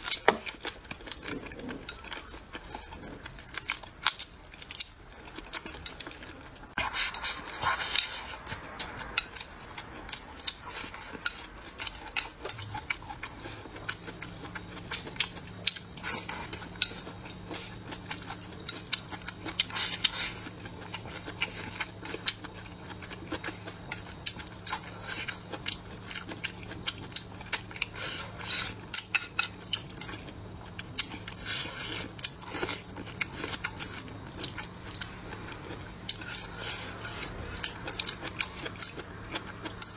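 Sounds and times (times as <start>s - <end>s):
close chewing: 0.0s - 39.9s.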